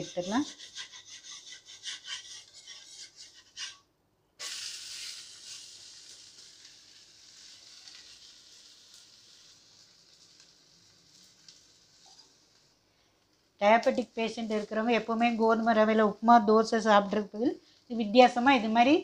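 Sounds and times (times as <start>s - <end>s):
spatula scraping iron griddle: 0.0s - 3.8s, 4.5s - 10.4s
dosa sizzling on griddle: 4.4s - 15.7s.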